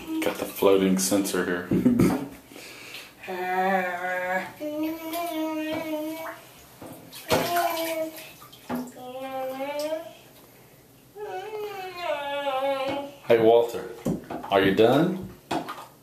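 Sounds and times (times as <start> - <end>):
bath water splashing: 0.0 - 10.6, 11.3 - 16.0
person singing vowel sounds: 3.2 - 6.4, 11.2 - 13.3.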